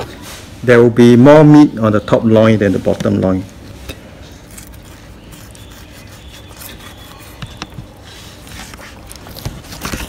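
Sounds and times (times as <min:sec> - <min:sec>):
knife scraping fish flesh and bone: 0:03.9 - 0:10.0.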